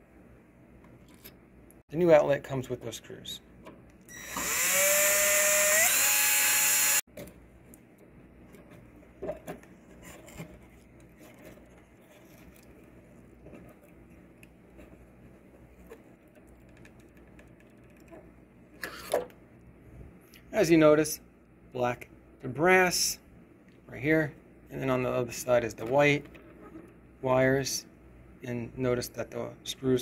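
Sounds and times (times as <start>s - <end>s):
cordless drill whining: 4.1s - 7.0s.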